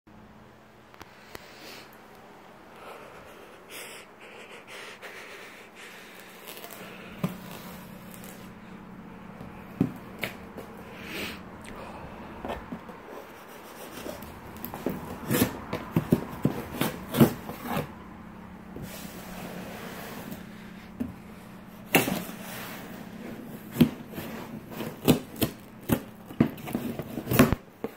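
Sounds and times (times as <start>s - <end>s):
cardboard rubbing and scraping: 5.9s - 8.7s, 12.4s - 18.0s, 18.7s - 27.9s.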